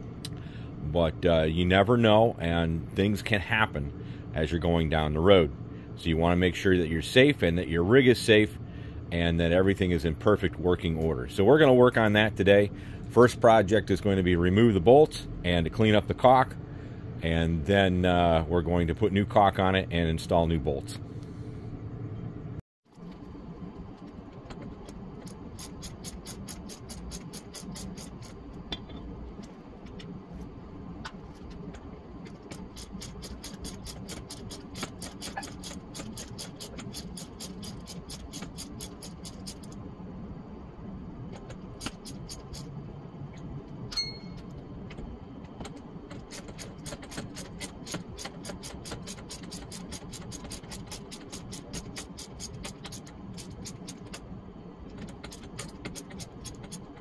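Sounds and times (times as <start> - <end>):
steady low hum: 0.0 - 57.0
ratchet wrench clicking: 25.6 - 28.3, 32.5 - 39.8.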